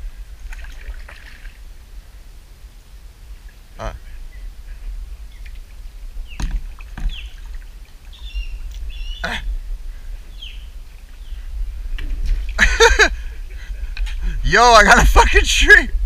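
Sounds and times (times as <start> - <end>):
steady low rumble: 0.0 - 16.0
birds chirping: 3.8 - 14.6
paddle knocks and splashes: 5.4 - 7.7.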